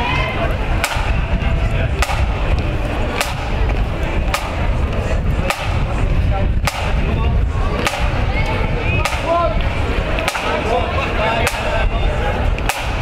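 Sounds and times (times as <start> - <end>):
crowd chatter: 0.0 - 13.0
low rumble: 0.0 - 13.0
parade drum beating: 1.9 - 4.8, 5.4 - 7.2, 10.2 - 10.8, 12.6 - 13.0.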